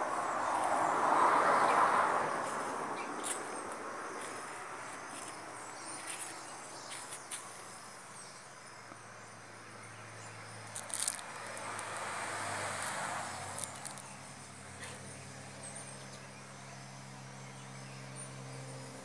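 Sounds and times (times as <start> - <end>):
insects chirping: 0.0 - 19.0.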